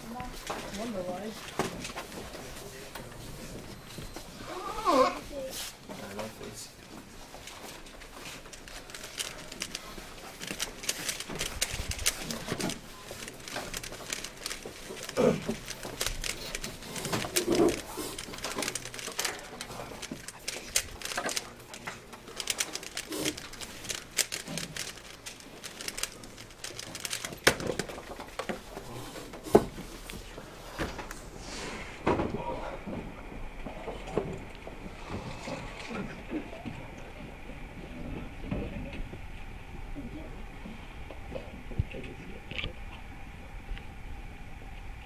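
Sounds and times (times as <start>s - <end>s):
plastic puzzle cube clicking: 8.5s - 28.6s.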